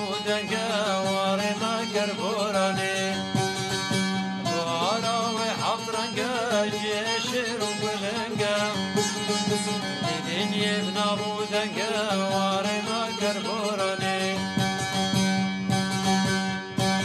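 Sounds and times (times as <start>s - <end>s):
folk melody with pitch bends: 0.0s - 17.0s.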